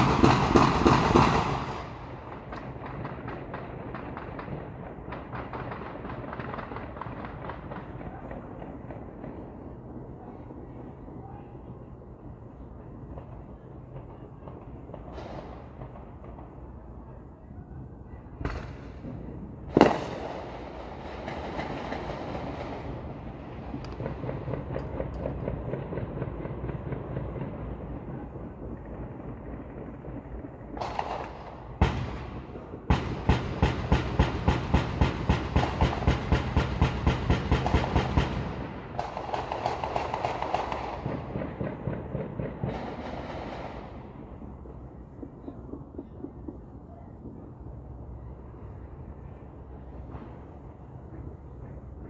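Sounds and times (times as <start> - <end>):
crackling firework pops: 0.0 - 9.4, 18.4 - 23.0, 28.6 - 32.4
distant firecrackers popping: 0.0 - 11.0, 12.6 - 17.2, 18.4 - 52.0
firework bang with echo: 18.4 - 23.1, 30.8 - 44.2.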